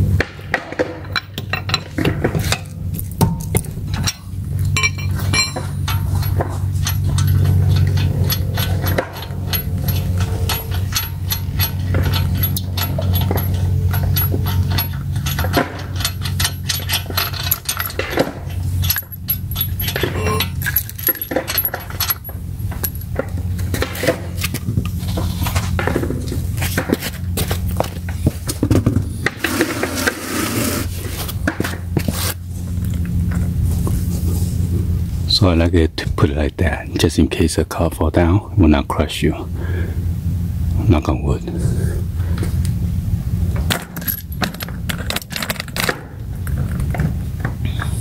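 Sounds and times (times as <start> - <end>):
steady low hum: 0.0 - 48.0
metallic clinks of wrench and nuts: 3.9 - 23.3, 43.7 - 45.9.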